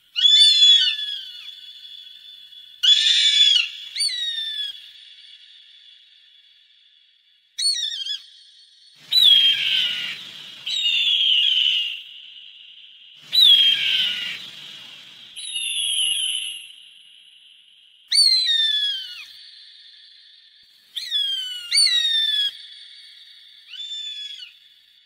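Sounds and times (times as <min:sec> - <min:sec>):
hawk whistled calls: 0:00.2 - 0:05.0, 0:07.6 - 0:08.3, 0:09.0 - 0:12.4, 0:13.2 - 0:16.9, 0:18.1 - 0:19.5, 0:20.9 - 0:22.7, 0:23.7 - 0:24.6.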